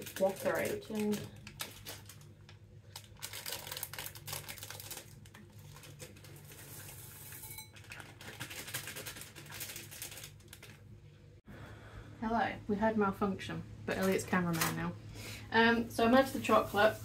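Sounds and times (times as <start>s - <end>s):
steady low hum: 10.4s - 17.0s.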